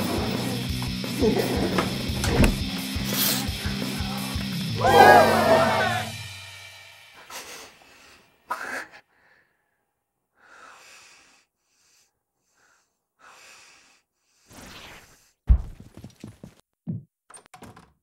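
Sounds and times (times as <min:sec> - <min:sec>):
person breathing heavily: 0:03.0 - 0:04.5, 0:07.2 - 0:14.5.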